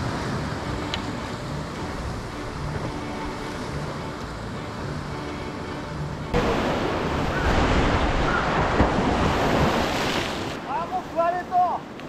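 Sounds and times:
waves against rocky shore: 0:00.0 - 0:12.0.

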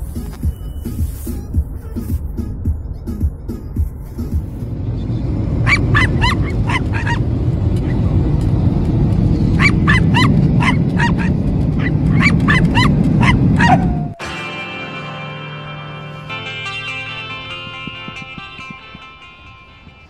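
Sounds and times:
jet airliner cabin roar: 0:01.5 - 0:14.3
small dog yapping: 0:05.6 - 0:07.2, 0:09.6 - 0:14.2.

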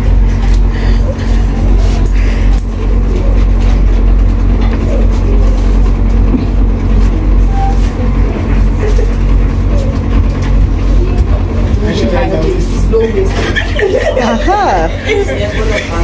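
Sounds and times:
faint murmur of voices: 0:00.0 - 0:16.0
low machine drone: 0:00.0 - 0:16.0.

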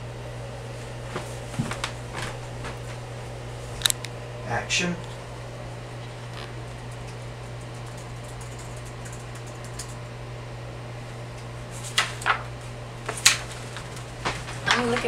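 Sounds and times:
air conditioner humming: 0:00.0 - 0:15.0
laptop keys clicking: 0:06.9 - 0:10.0.

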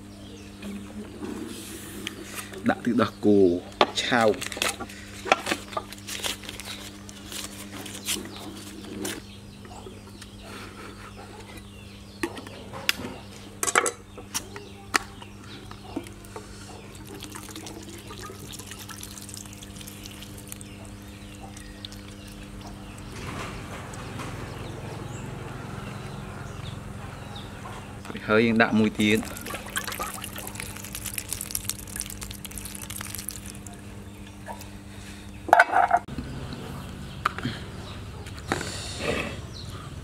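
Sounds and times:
liquid pouring in a thin stream: 0:16.9 - 0:23.1, 0:29.0 - 0:33.8.

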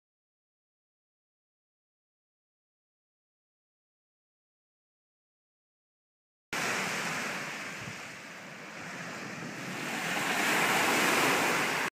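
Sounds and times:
surf washing onto shore: 0:06.6 - 0:11.9.

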